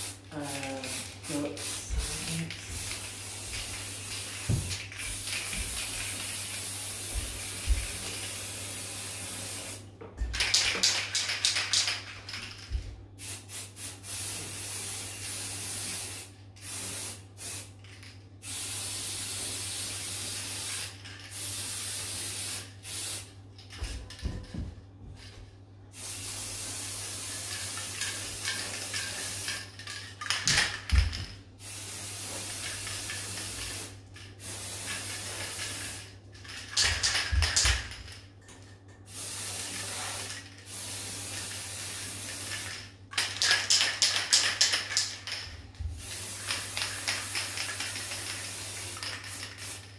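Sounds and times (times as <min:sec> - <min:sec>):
aerosol spray can hissing: 0:00.0 - 0:09.8, 0:13.2 - 0:17.7, 0:18.4 - 0:23.3, 0:30.8 - 0:36.0, 0:39.1 - 0:42.8, 0:46.0 - 0:49.9.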